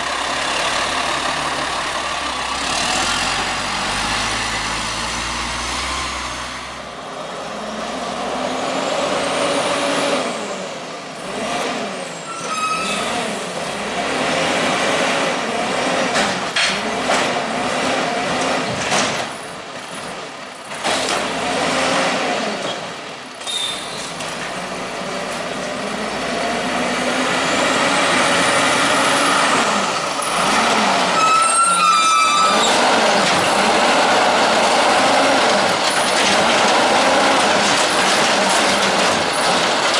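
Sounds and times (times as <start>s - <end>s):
garbage truck engines revving: 0.0s - 39.9s
air brakes squealing: 12.2s - 13.3s, 23.4s - 24.2s, 31.1s - 32.8s.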